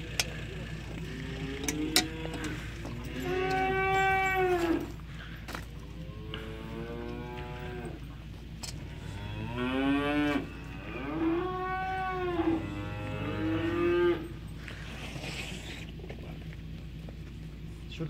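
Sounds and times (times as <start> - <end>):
young cattle mooing: 1.0 - 5.3, 5.9 - 14.6.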